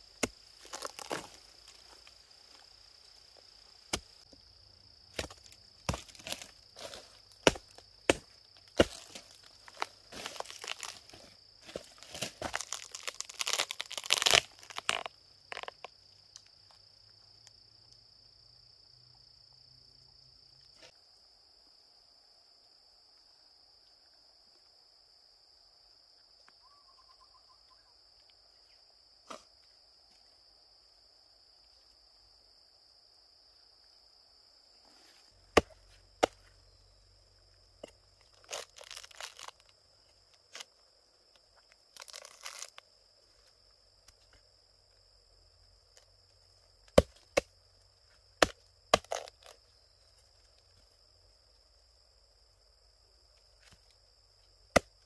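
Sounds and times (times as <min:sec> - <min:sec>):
insect drone: 0:00.0 - 0:55.0
wood crunching and crackling: 0:00.1 - 0:02.6, 0:05.1 - 0:16.4, 0:37.8 - 0:39.7, 0:41.9 - 0:42.8, 0:48.4 - 0:49.6.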